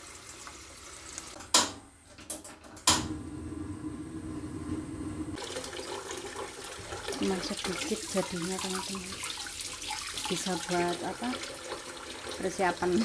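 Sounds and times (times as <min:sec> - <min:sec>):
steady low hum: 0:02.8 - 0:05.4.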